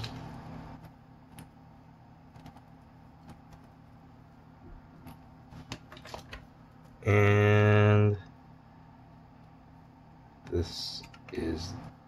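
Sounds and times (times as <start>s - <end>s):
steady low hum: 0.0s - 12.0s
cable handling noise: 5.0s - 6.5s.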